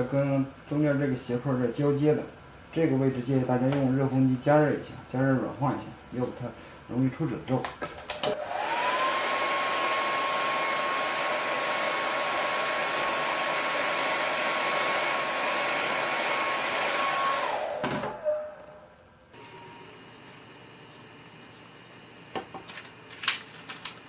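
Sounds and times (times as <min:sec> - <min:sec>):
hair dryer blowing: 0:08.2 - 0:18.6.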